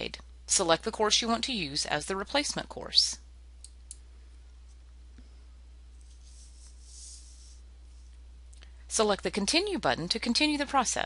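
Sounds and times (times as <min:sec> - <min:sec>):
low electrical hum: 0:00.0 - 0:11.0
faint hiss: 0:05.2 - 0:09.0.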